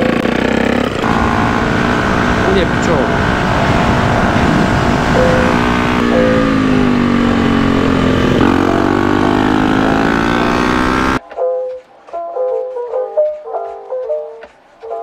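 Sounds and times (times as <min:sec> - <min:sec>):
motorcycle engine running: 0:00.0 - 0:11.2.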